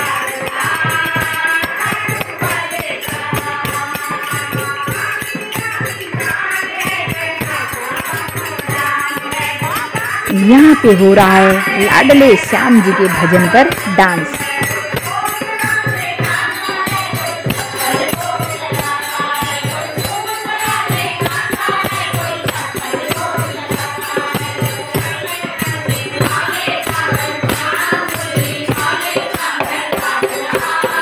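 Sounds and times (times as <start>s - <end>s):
jingling percussion: 0.0s - 31.0s
voices singing devotional song: 0.0s - 31.0s
hand drumming: 10.3s - 15.0s.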